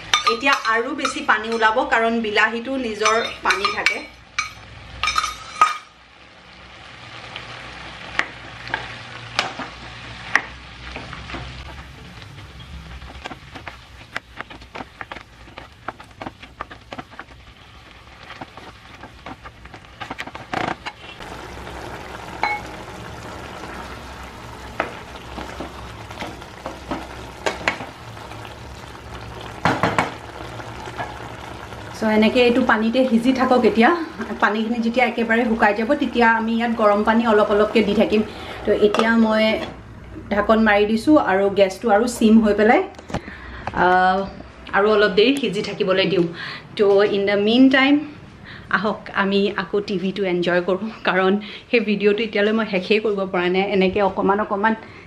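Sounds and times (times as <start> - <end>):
steel bowl knocking on pan: 0.0 - 1.8, 3.0 - 5.8, 29.5 - 30.2
food sizzling in a frying pan: 0.0 - 40.9
spatula scraping and tapping pan: 13.0 - 17.4.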